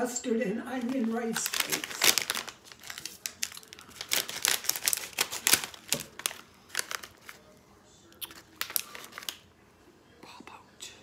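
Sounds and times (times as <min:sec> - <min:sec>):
snack bag rustling and crackling: 0:00.8 - 0:09.5.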